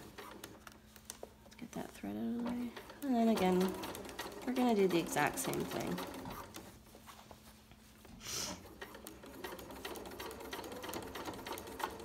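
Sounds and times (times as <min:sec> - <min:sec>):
sewing machine stitching: 0:02.4 - 0:06.7, 0:08.6 - 0:12.0.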